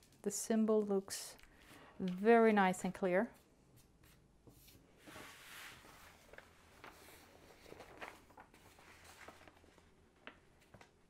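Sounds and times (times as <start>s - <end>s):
canvas and paper rustling: 3.4s - 11.0s.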